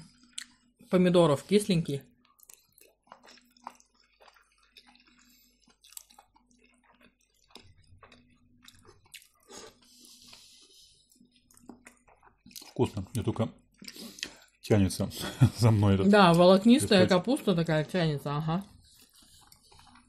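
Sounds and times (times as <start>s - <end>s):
person chewing with wet mouth clicks: 0.2s - 0.6s, 2.2s - 14.6s, 18.6s - 20.0s.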